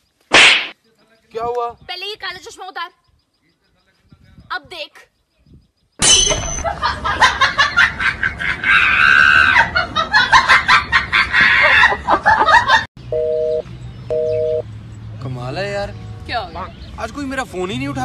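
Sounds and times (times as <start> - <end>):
cackling laughter and screeching: 6.6 - 12.9
telephone ringback tone: 13.1 - 14.6.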